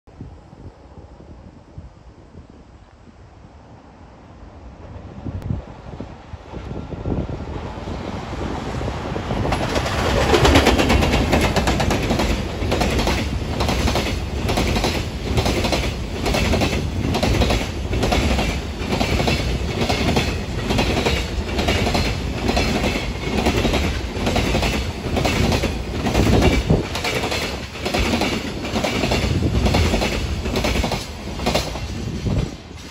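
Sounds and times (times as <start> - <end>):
electric locomotive passing: 0.2 - 32.9
train wheels clattering over rail joints: 9.4 - 32.9.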